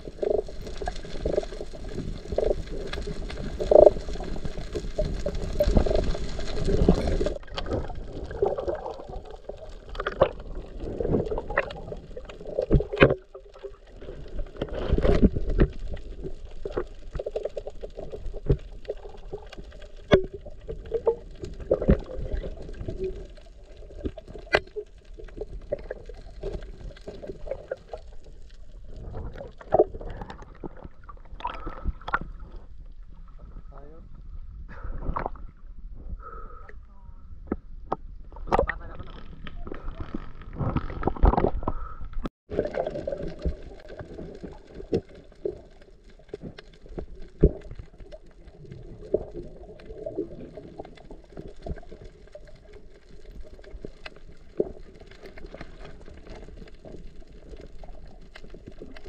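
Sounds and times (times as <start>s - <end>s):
muffled underwater water movement: 0.0s - 59.0s.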